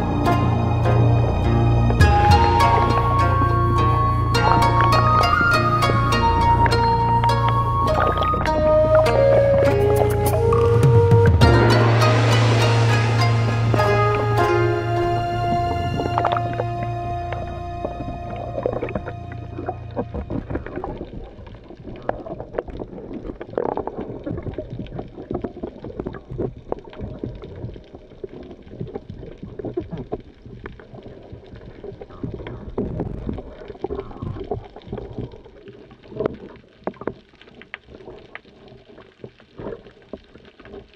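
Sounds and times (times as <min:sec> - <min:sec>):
underwater sloshing and gurgling: 0:00.0 - 0:40.9.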